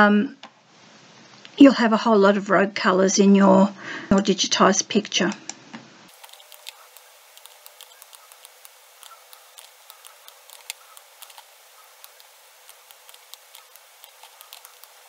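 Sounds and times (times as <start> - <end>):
faint steady hiss: 5.4 - 15.0
computer mouse clicking: 6.1 - 15.0.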